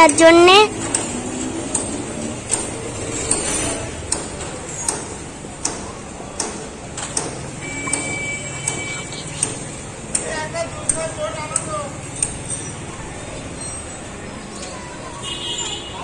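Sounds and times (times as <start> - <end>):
distant voices: 0.0 - 16.0
sharp repeating click: 0.8 - 10.3.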